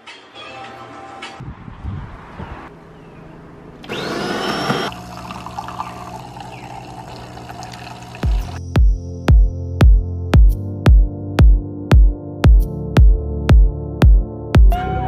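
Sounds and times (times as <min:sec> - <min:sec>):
espresso machine pump hum: 0:03.8 - 0:08.6
espresso machine whirring: 0:03.8 - 0:08.6.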